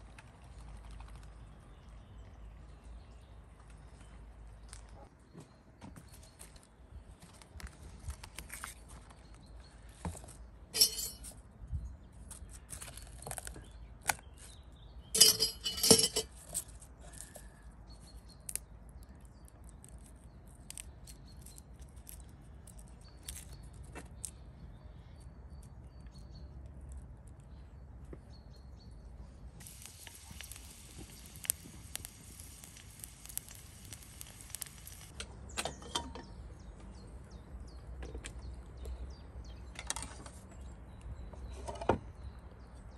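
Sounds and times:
kitchenware clinking and knocking: 10.8 - 11.3, 15.2 - 16.3
steady hiss: 29.6 - 35.1.

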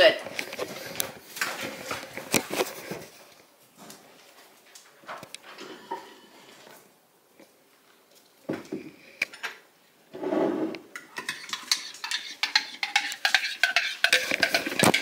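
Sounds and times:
cutlery and crockery clinking: 10.9 - 15.0.

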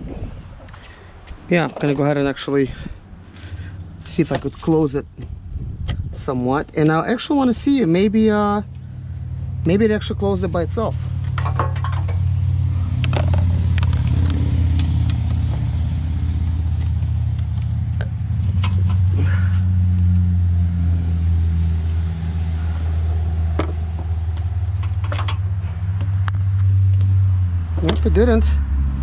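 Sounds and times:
car engine running: 7.6 - 27.1.

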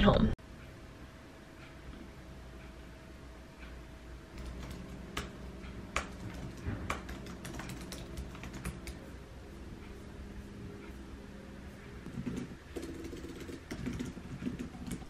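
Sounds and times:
laptop keyboard typing: 4.3 - 9.0, 12.0 - 15.0.

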